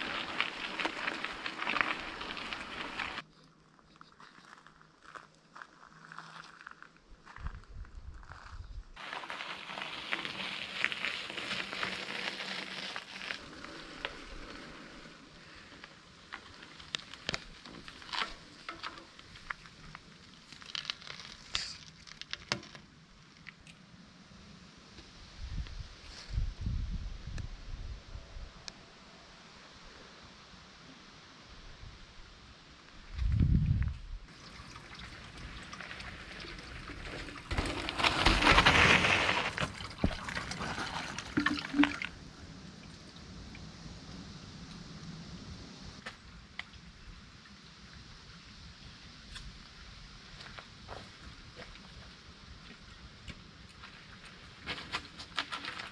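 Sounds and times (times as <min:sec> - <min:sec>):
water trickling and splashing: 0:00.0 - 0:03.2, 0:34.3 - 0:43.7
crackles and clicks in undergrowth: 0:00.0 - 0:24.1, 0:32.7 - 0:55.9
water gurgles: 0:39.5 - 0:43.2.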